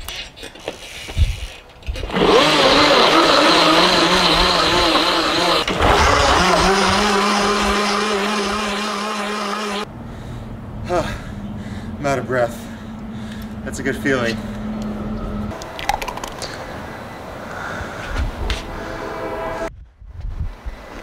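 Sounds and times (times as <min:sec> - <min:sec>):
blender whirring: 0:02.1 - 0:09.9.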